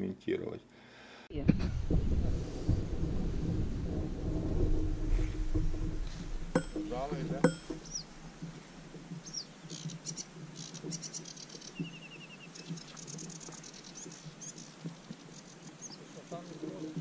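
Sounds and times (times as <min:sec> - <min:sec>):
small songbirds singing: 0:07.4 - 0:17.0.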